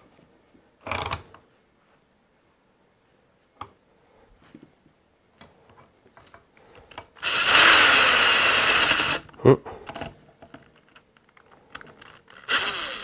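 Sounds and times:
cordless drill running: 7.2s - 9.3s, 12.3s - 13.0s
metal parts clicking and knocking: 9.9s - 12.5s.

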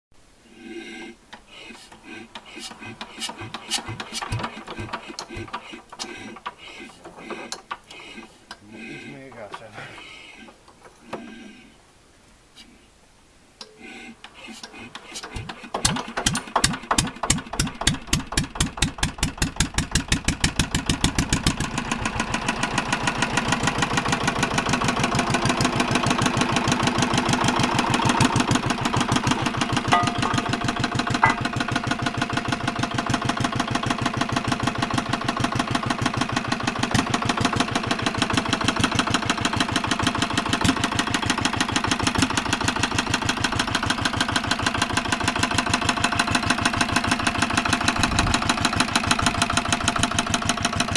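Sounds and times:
diesel engine running: 14.8s - 50.9s.

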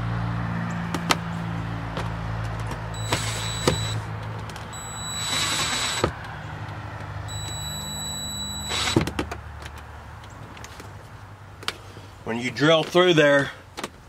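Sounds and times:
cordless drill motor whine: 3.0s - 4.0s, 4.8s - 6.1s, 7.3s - 9.0s.

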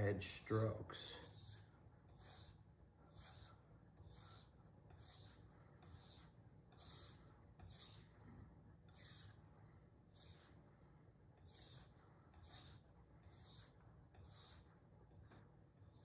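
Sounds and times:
knife scraping on sharpening plate: 1.2s - 8.1s.

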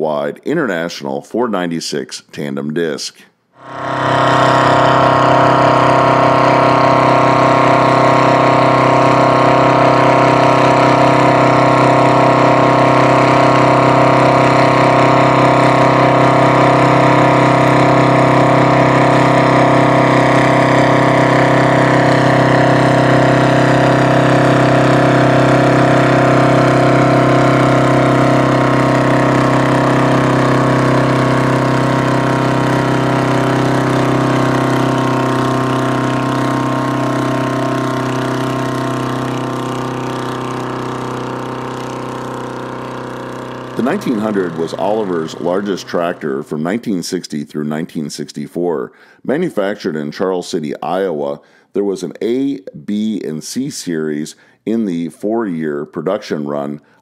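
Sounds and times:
tractor diesel engine under load: 3.8s - 46.8s.

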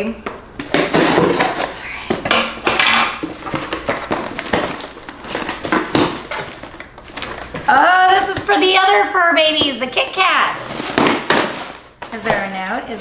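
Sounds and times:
packaging crinkling and rustling: 2.6s - 8.7s.

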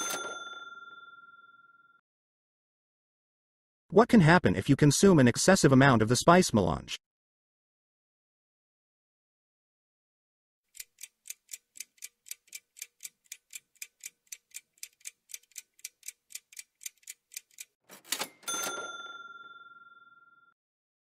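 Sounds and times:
bell-like ding: 0.0s - 1.6s, 18.2s - 20.5s
clock ticking: 10.7s - 17.8s.

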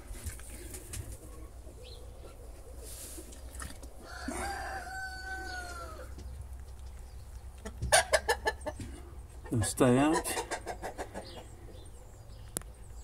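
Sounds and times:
rooster crowing: 4.0s - 6.2s.

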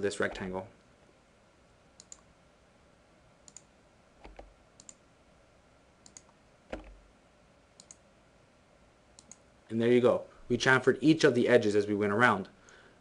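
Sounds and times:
computer mouse clicks: 2.0s - 2.3s, 3.4s - 5.0s, 6.0s - 7.0s, 7.8s - 8.0s, 9.2s - 9.5s.

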